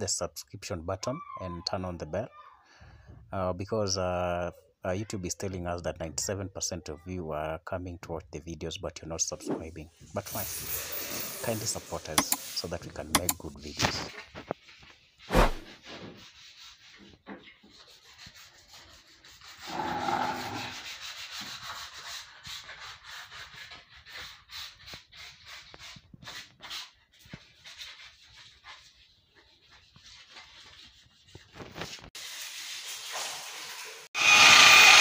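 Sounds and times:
scrubbing on wet floor tiles: 0:14.1 - 0:33.4.

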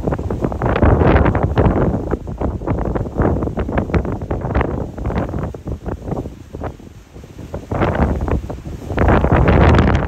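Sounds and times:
wind buffeting microphone: 0:00.0 - 0:10.0.

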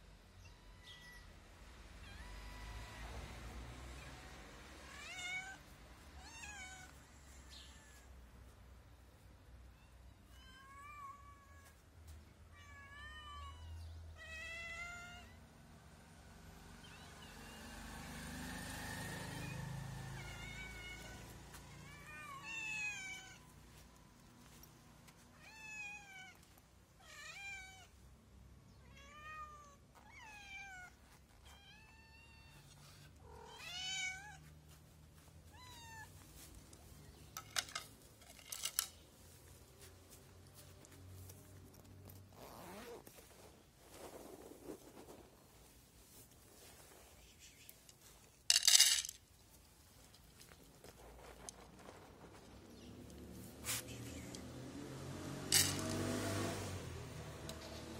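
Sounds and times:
cats meowing: 0:00.4 - 0:01.4, 0:02.0 - 0:03.1, 0:03.9 - 0:08.2, 0:09.7 - 0:11.8, 0:12.5 - 0:15.4, 0:19.1 - 0:24.1, 0:25.3 - 0:28.0, 0:28.8 - 0:34.7, 0:35.4 - 0:37.1
rustling noise: 0:30.8 - 0:54.3.

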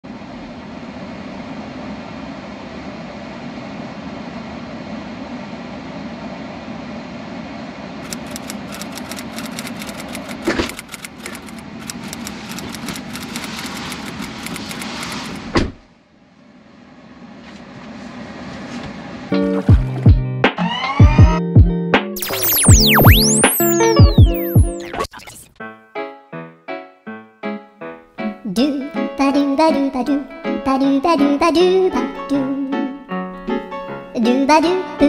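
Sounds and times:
typewriter key clicks: 0:08.1 - 0:15.0.

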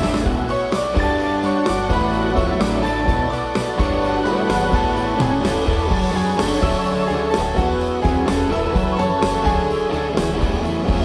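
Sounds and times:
drum strokes: 0:00.0 - 0:11.0
electric guitar: 0:00.0 - 0:11.0
keyboards: 0:00.0 - 0:11.0
live band music: 0:00.0 - 0:11.0.

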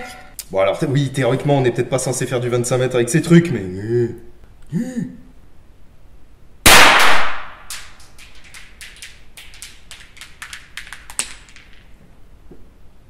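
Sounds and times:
pistol shot: 0:06.7 - 0:07.9
ball bouncing and rattling on floor: 0:07.7 - 0:12.1.

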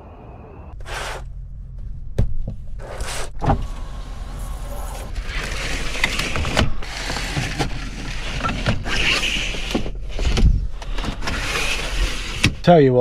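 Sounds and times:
blinds sliding rustle: 0:02.9 - 0:12.7.

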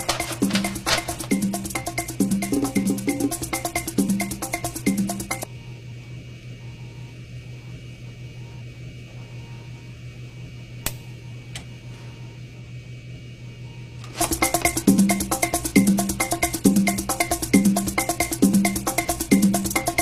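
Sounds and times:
music beat: 0:00.0 - 0:05.5, 0:14.2 - 0:20.0
low hum with hiss: 0:00.0 - 0:20.0.

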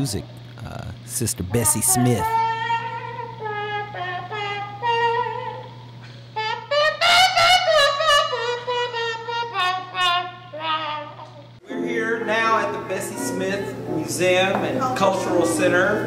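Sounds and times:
steady low hum: 0:00.0 - 0:16.0
blues harmonica: 0:01.5 - 0:14.1.

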